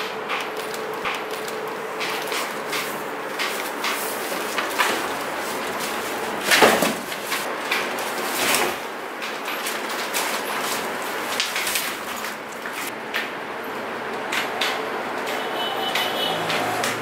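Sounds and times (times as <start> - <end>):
cardboard and plastic rustling: 0.1 - 13.0.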